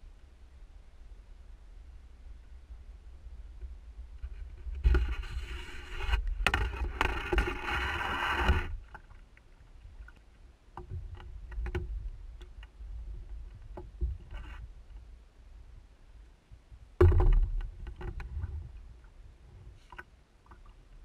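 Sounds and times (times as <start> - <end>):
rushing scraping water noise: 4.2 - 9.4, 13.4 - 14.7
knocks against canoe hull: 17.0 - 18.2.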